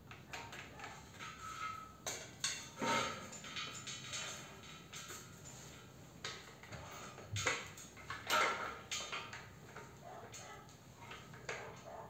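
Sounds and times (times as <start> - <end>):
metal tube clinking and scraping: 0.3 - 11.7.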